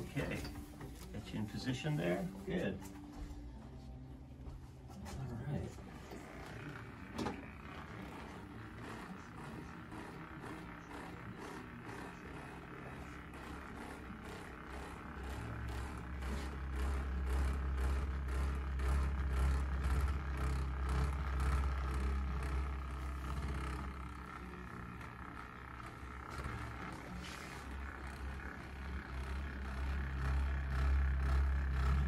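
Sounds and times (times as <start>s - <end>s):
massage gun buzzing: 0.0s - 32.0s.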